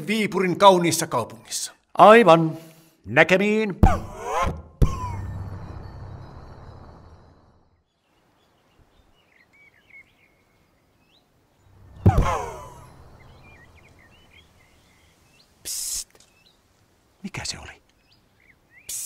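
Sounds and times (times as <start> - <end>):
low hum: 4.8 - 7.8, 11.6 - 14.6
faint bird chirps: 5.0 - 19.0.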